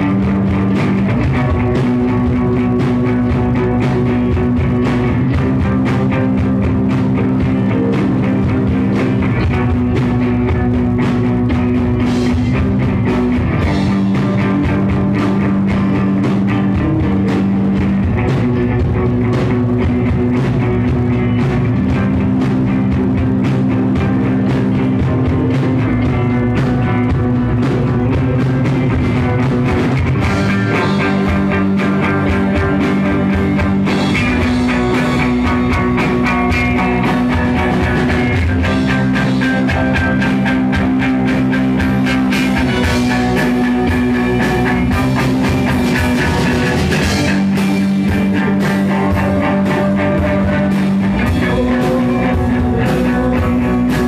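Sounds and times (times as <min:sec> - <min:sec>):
bass guitar: 0:00.0 - 0:54.0
drum kit: 0:00.0 - 0:54.0
electric guitars: 0:00.0 - 0:54.0.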